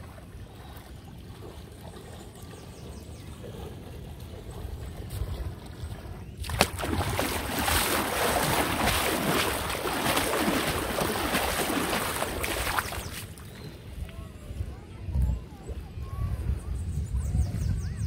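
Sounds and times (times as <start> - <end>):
water splashing from wading: 0.0 - 14.1
flowing water: 0.0 - 16.7.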